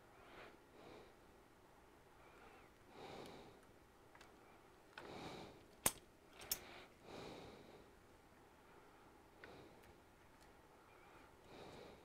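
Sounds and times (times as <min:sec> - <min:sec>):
faint close breathing: 0:00.0 - 0:01.4, 0:02.1 - 0:05.8, 0:06.4 - 0:12.0.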